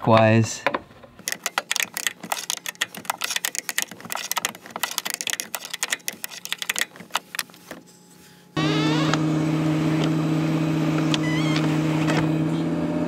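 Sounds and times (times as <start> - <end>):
ratcheting wrench clicking: 1.2 - 7.5
loud motor hum: 8.5 - 13.0.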